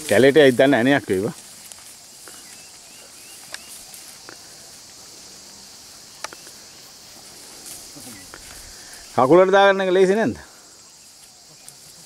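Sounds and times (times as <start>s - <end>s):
high-pitched insect chorus: 0.0s - 12.0s.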